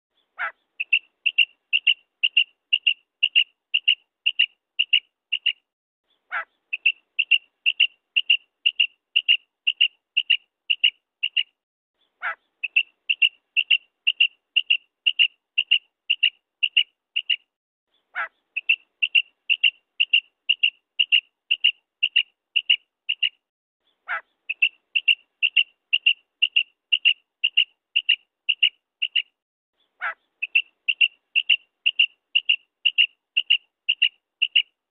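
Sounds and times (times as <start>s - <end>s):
quail calling: 0.4s - 5.6s, 6.3s - 11.5s, 12.2s - 17.4s, 18.1s - 23.4s, 24.0s - 29.3s, 30.0s - 34.7s.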